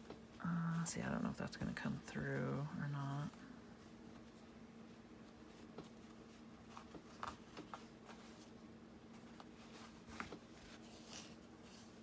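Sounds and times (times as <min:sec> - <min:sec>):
low steady hum: 0:00.0 - 0:12.0
soft ticks and cloth rustles: 0:00.0 - 0:12.0.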